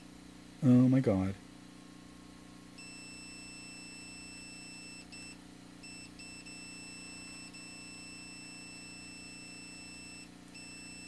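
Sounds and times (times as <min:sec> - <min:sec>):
multimeter continuity beep: 0:02.8 - 0:11.0.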